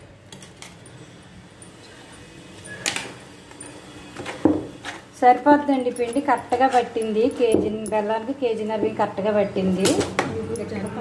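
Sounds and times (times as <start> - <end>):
spoon knocking and scraping pot: 5.8 - 8.1
dough being stirred: 5.8 - 9.0.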